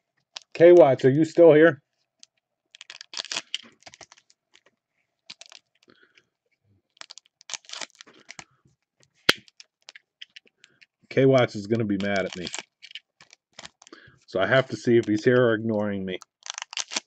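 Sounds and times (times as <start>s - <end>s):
foil wrappers crinkling: 2.2s - 4.7s, 5.3s - 6.0s, 6.9s - 8.5s, 11.6s - 15.5s, 16.2s - 17.0s.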